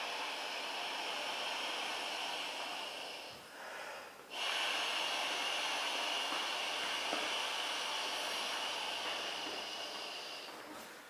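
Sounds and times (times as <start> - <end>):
person blowing into valve: 4.3 - 10.5.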